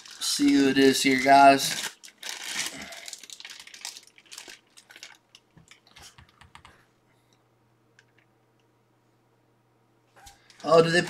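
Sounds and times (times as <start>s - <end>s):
plastic sleeve crinkling: 0.0s - 6.2s, 10.3s - 11.0s.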